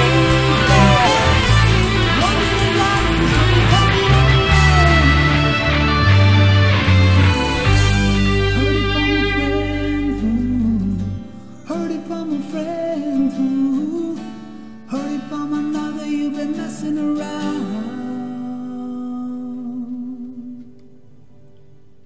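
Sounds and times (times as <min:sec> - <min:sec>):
people singing: 0:00.0 - 0:05.2
rock band playing: 0:00.0 - 0:09.7
heavy bass: 0:00.0 - 0:11.2.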